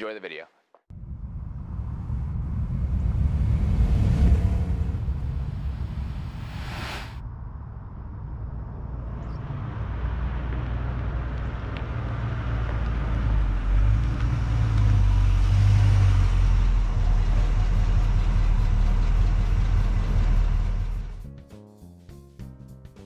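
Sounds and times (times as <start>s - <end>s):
pickup truck engine rumbling: 9.5s - 21.2s.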